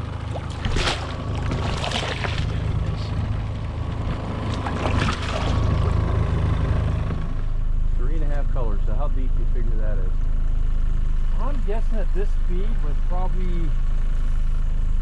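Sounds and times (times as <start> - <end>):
fish splashing water: 0.0 - 6.0
low boat rumble: 0.0 - 15.0.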